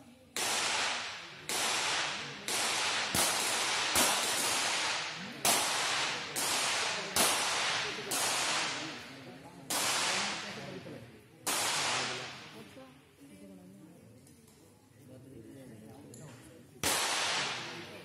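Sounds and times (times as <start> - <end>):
pistol shots echoing: 0.3 - 12.6, 16.8 - 18.0.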